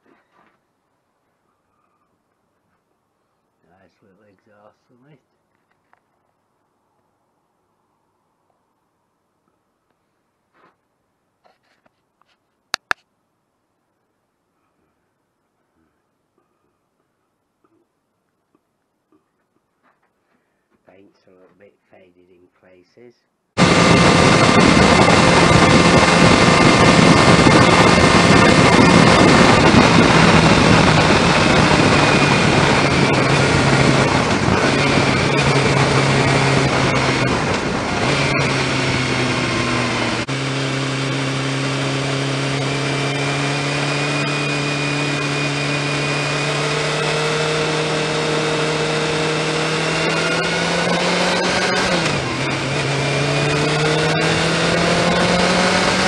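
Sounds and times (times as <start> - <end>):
wind rush: 23.6 - 40.2
motorcycle engine running: 23.6 - 56.0.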